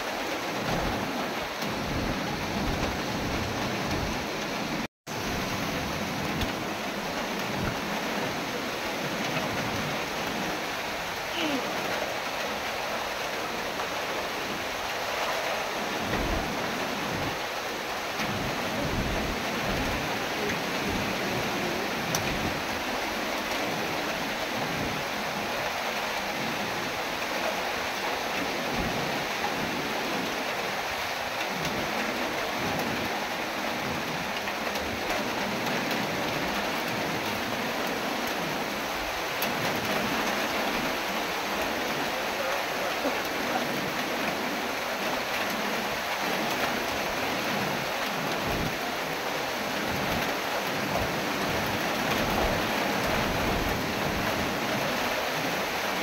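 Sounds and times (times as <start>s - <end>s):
gusting wind rumbles: 0.0s - 27.3s
heavy rain hissing: 0.0s - 56.0s.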